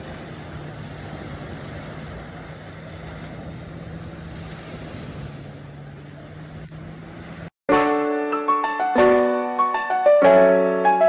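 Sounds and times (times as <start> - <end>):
waves washing on shore: 0.0 - 7.5.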